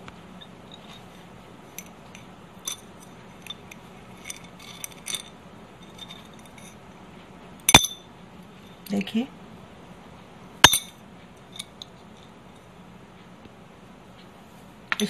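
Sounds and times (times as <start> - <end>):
glass and metal clinks: 1.8 - 6.8, 7.7 - 8.1, 10.6 - 11.9.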